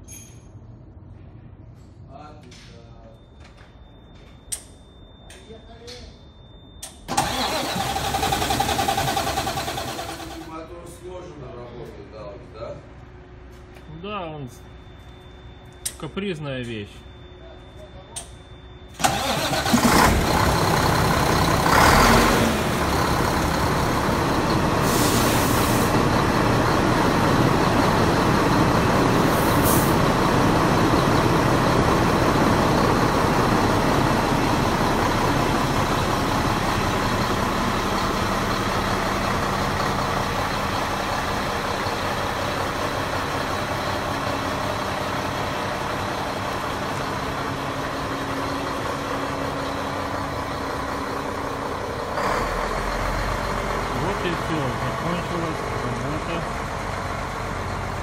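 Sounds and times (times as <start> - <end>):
diesel truck engine idling: 7.1 - 11.6, 19.0 - 58.0.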